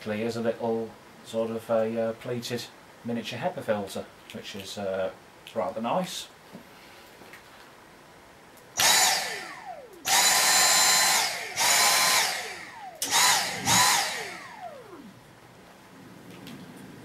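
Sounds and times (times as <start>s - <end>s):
vacuum motor whining: 8.8s - 15.3s.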